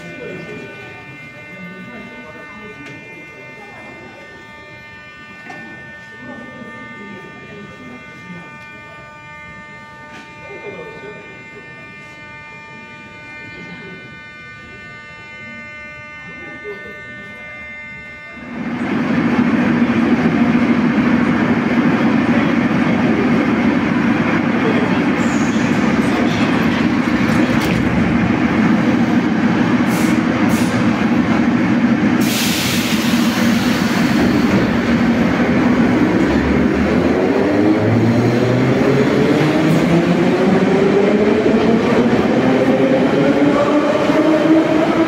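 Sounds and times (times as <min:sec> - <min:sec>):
rising whine of train: 0:00.0 - 0:45.0
train equipment humming: 0:00.0 - 0:45.0.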